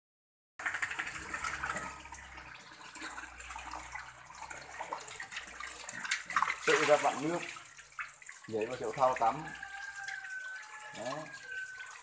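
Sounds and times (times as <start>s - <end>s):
tap water pouring into metal basin: 0.6s - 12.0s.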